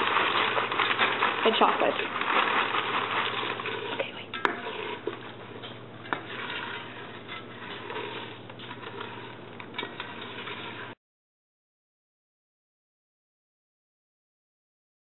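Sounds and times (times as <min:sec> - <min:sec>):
spoon stirring crispy cereal: 0:00.0 - 0:11.0.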